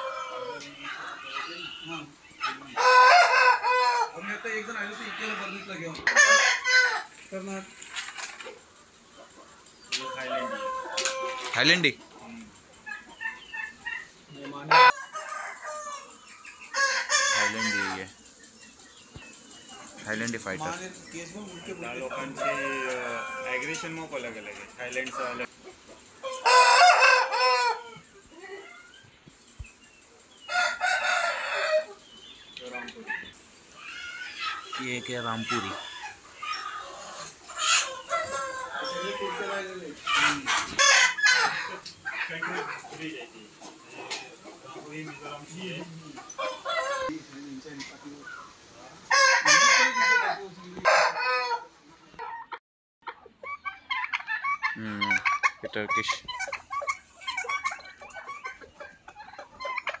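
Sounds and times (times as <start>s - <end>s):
rooster crowing: 0.0s - 7.1s, 9.9s - 11.8s, 14.5s - 18.2s, 21.5s - 25.5s, 26.2s - 28.6s, 30.5s - 32.0s, 37.7s - 41.9s, 46.4s - 47.1s, 48.8s - 51.8s
soft poultry calls: 0.0s - 29.4s, 30.4s - 60.0s
roosters crowing: 0.0s - 60.0s.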